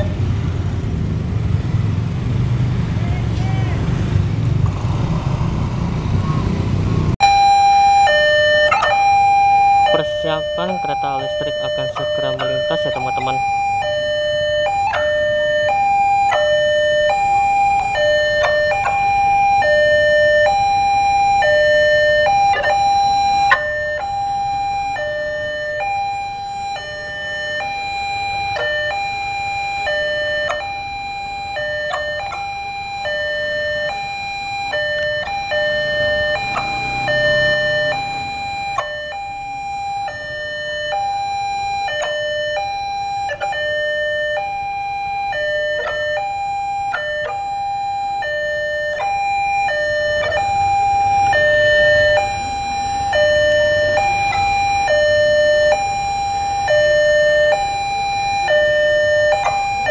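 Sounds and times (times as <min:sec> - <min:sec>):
faint traffic rumble: 0:00.0 - 0:59.9
level crossing alarm two-tone chime: 0:07.2 - 0:28.6.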